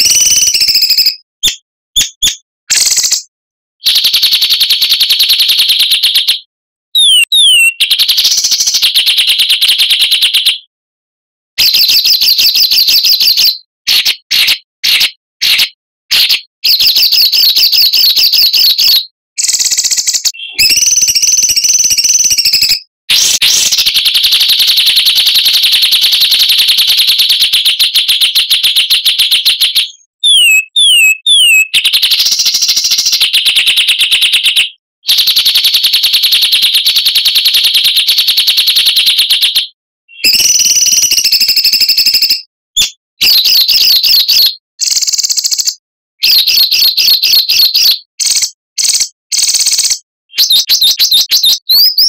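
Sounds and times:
downward-sliding whistles: 0:19.4 - 0:23.8.

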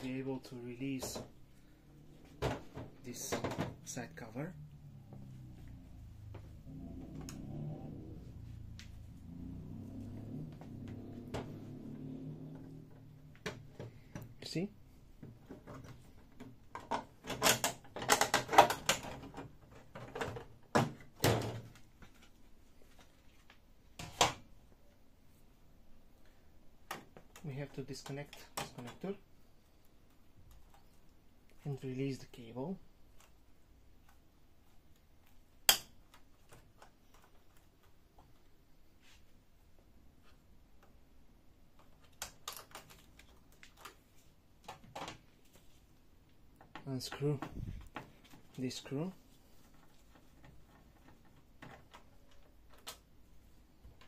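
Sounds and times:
plastic cover clacking and knocking: 0:02.4 - 0:03.9, 0:15.2 - 0:22.2.

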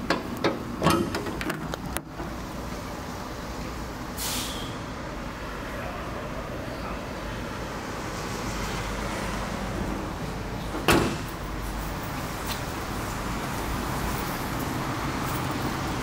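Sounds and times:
short hiss: 0:04.2 - 0:04.8.

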